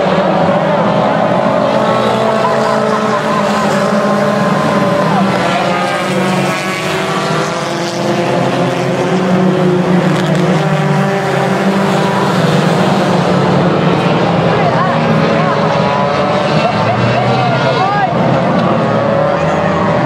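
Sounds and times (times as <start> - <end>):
stock car engines racing: 0.0 - 20.0.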